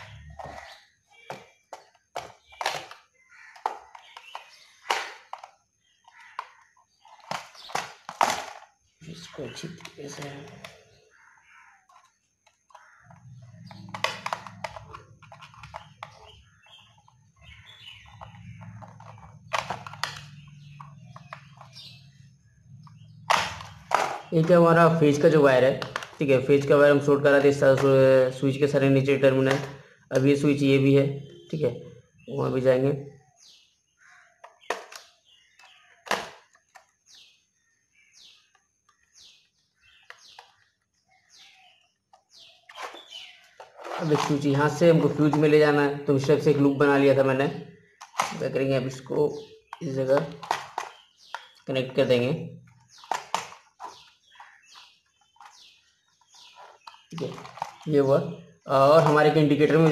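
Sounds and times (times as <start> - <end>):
bird chirping: 0.0 - 59.9.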